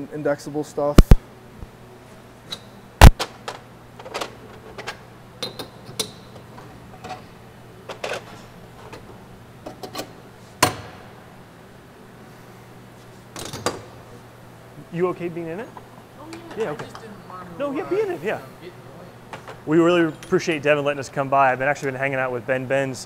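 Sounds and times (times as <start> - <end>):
faint steady hum: 0.0 - 23.0.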